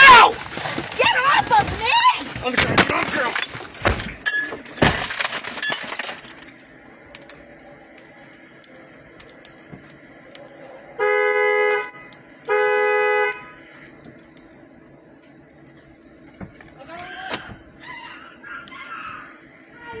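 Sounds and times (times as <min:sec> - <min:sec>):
knocking and rustling: 0:00.0 - 0:06.6, 0:16.3 - 0:17.7
car horn honking: 0:11.0 - 0:13.6.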